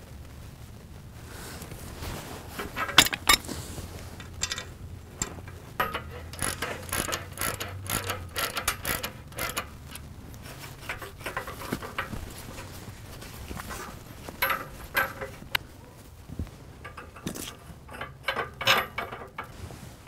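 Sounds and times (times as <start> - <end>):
pipe wrench clanking on steel pipe: 2.8 - 3.4, 4.3 - 10.0, 14.4 - 15.4, 16.8 - 19.6.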